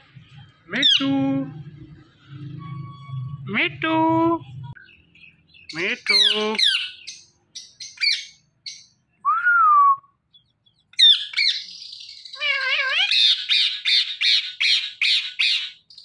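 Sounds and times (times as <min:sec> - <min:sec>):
parakeets chirping and whistling: 0:00.1 - 0:03.4, 0:04.7 - 0:09.0, 0:10.3 - 0:16.0
parakeet harsh screeches: 0:11.0 - 0:15.8.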